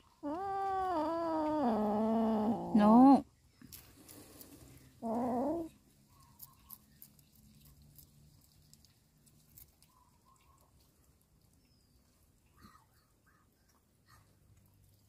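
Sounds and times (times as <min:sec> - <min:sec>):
kittens chewing: 0:00.0 - 0:02.5, 0:03.4 - 0:15.0
cat crying: 0:05.0 - 0:05.7.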